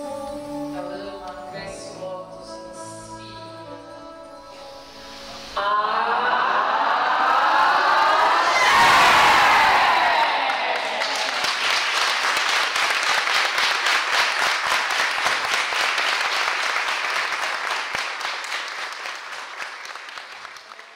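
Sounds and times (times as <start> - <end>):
group shout: 5.6 - 11.4
audience applauding: 6.6 - 20.9.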